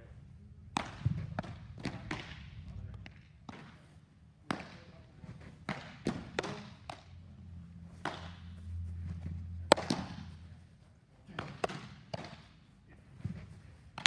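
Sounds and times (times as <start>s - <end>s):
balls knocking and thudding: 0.7s - 3.8s, 9.6s - 10.3s
baseball smacking into mitt: 0.7s - 3.8s, 5.6s - 7.1s, 8.0s - 8.4s, 9.7s - 10.3s, 11.4s - 12.5s.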